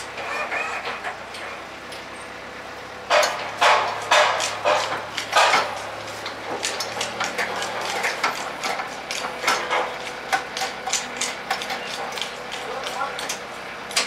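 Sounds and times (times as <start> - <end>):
metal clicks and knocks: 3.1 - 14.0.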